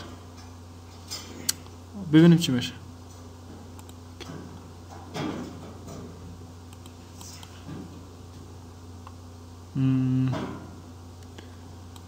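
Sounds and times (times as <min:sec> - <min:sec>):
low electrical hum: 0:00.0 - 0:12.0
computer mouse clicks: 0:03.8 - 0:04.0, 0:06.7 - 0:07.5.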